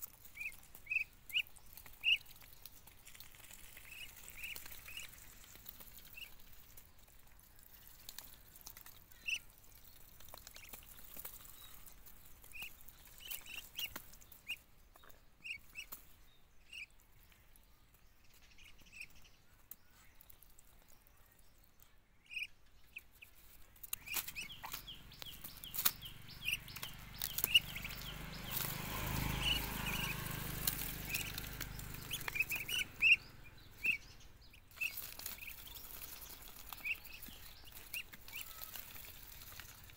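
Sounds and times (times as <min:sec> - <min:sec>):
high bird chirps: 0:22.2 - 0:39.7.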